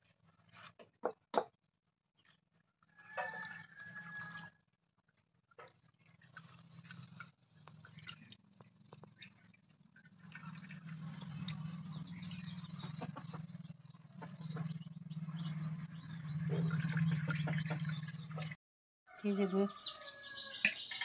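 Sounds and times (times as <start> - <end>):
ghee trickling and crackling: 2.2 - 13.6.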